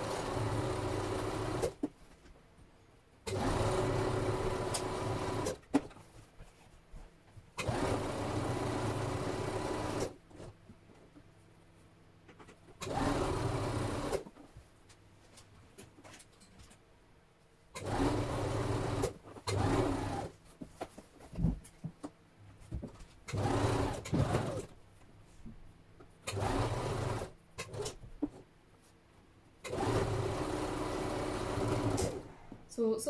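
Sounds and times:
sewing machine stitching: 0.0s - 1.8s, 3.3s - 5.8s, 7.6s - 10.5s, 12.8s - 14.3s, 17.8s - 20.3s, 23.3s - 24.8s, 26.2s - 28.0s, 29.6s - 32.3s.

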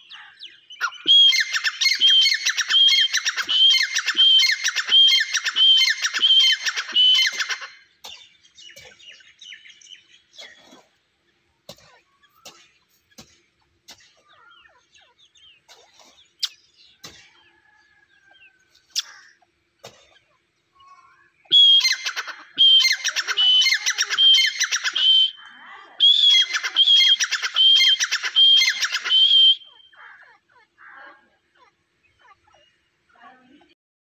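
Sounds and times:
bird ringing call: 0.0s - 7.8s, 21.4s - 30.4s.

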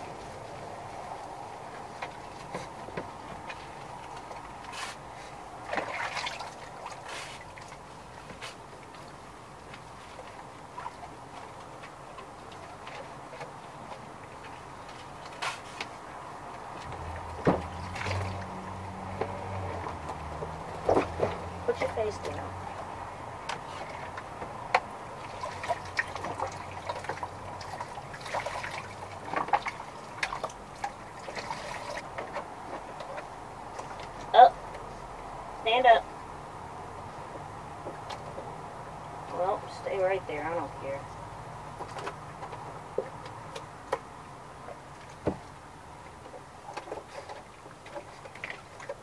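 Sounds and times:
water splashing in a tub: 0.0s - 49.0s
water dripping: 16.5s - 20.8s, 21.4s - 35.5s
clicks and knocks in plastic tub: 16.6s - 22.4s, 41.7s - 49.0s.

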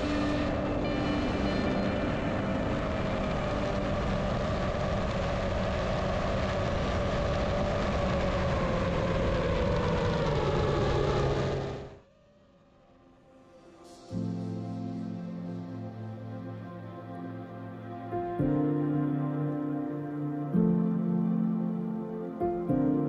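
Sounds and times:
wind rush: 0.0s - 12.0s.

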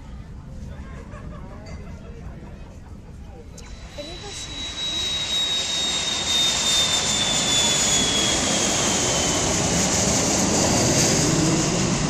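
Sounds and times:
jet airliner engines whining: 3.0s - 12.0s.

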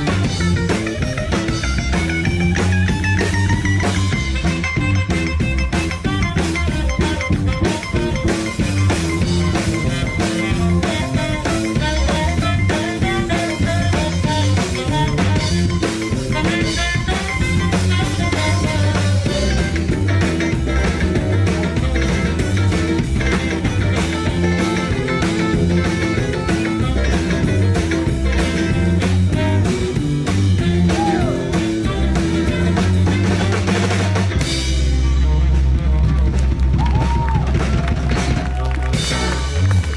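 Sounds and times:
drums: 0.0s - 39.9s
electric guitar: 0.0s - 39.9s
live rock band blues shuffle: 0.0s - 39.9s
saxophone: 0.0s - 39.9s.

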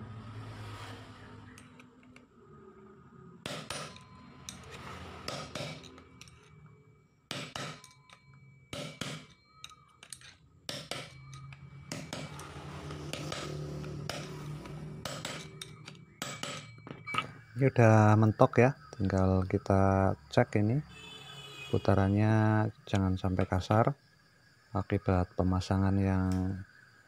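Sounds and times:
hammer tapping metal: 3.4s - 6.5s, 7.3s - 17.3s.

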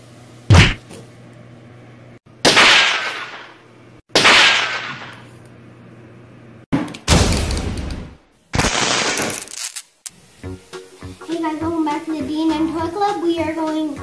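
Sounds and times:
cartoon whooshing bangs: 0.5s - 0.8s.

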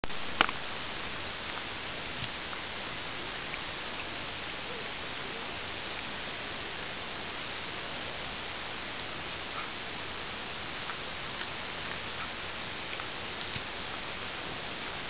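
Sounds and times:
steady hiss: 0.0s - 15.0s
cat gnawing corn cob clicks: 12.9s - 13.7s.

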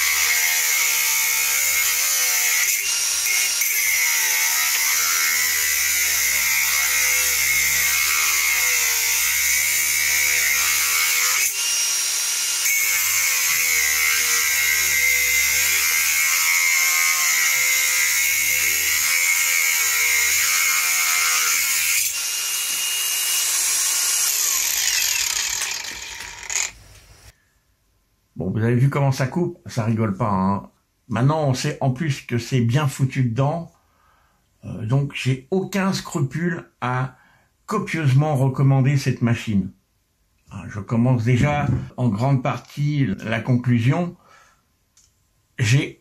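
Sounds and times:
angle grinder cutting: 0.0s - 27.3s.

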